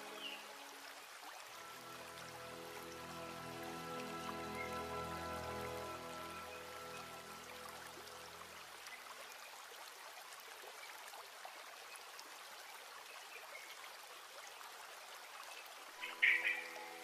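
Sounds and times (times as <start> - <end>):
background music: 0.0 - 0.9, 1.5 - 8.7, 16.0 - 17.0
soft steady hiss: 0.0 - 17.0.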